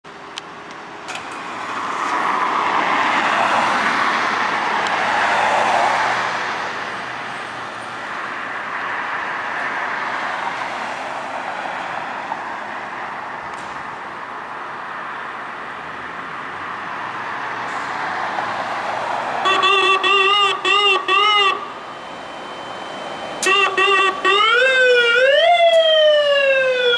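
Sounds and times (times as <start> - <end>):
road traffic noise: 0.0 - 26.9
vehicle passing: 1.1 - 13.3, 15.9 - 26.9
emergency vehicle idling: 18.8 - 26.9
loud warbling siren: 19.4 - 26.9.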